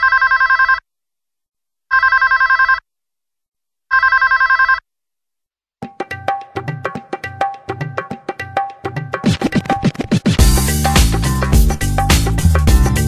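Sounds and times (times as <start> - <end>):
electronic telephone ringing: 0.0 - 0.8, 1.9 - 2.8, 3.9 - 4.8
music with percussive hits: 5.8 - 13.0.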